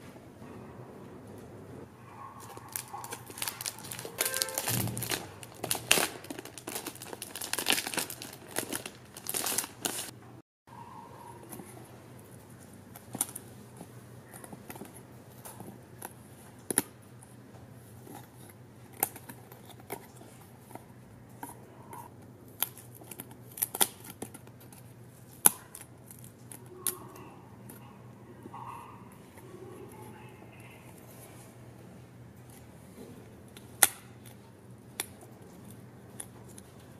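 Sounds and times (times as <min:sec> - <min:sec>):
paper rustling: 0:02.4 - 0:10.2
card tabs snapping: 0:02.6 - 0:07.1.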